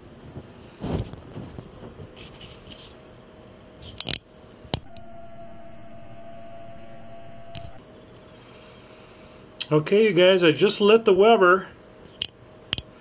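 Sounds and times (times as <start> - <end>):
camera zoom motor humming: 4.8 - 7.8.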